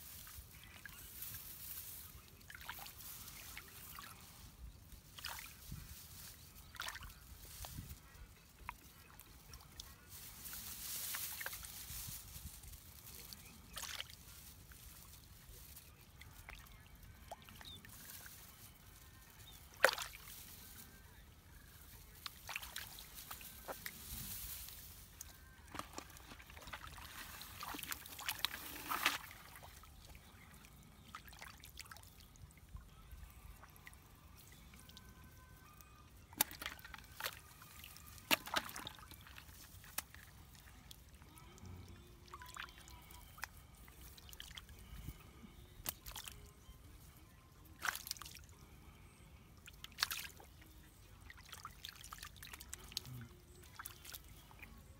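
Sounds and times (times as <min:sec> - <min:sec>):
hands splashing in muddy water: 0:13.4 - 0:14.2, 0:19.7 - 0:20.4, 0:25.7 - 0:29.8, 0:36.3 - 0:40.4, 0:47.8 - 0:48.4.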